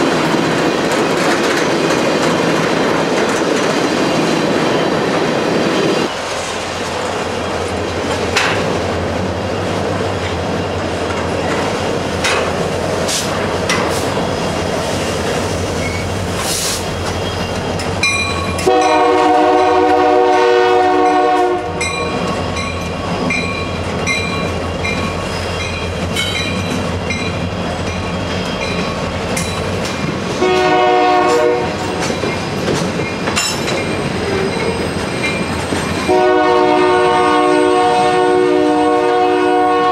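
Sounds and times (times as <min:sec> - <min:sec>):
train wheels clattering over rail joints: 0:00.0 - 0:09.0, 0:10.2 - 0:14.4, 0:21.8 - 0:36.2
locomotive air horn: 0:18.6 - 0:21.9, 0:30.4 - 0:31.9, 0:36.1 - 0:39.9.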